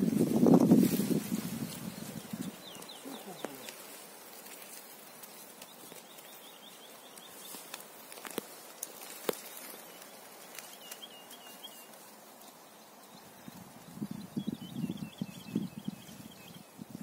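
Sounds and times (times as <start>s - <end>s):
songbird chirping and warbling: 0.0s - 17.0s.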